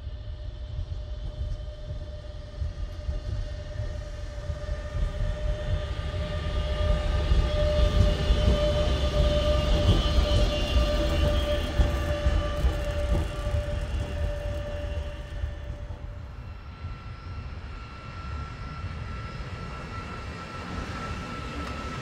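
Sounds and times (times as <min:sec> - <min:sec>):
electric locomotive whine: 0:00.0 - 0:22.0
wheels rumbling on rails: 0:05.6 - 0:16.4.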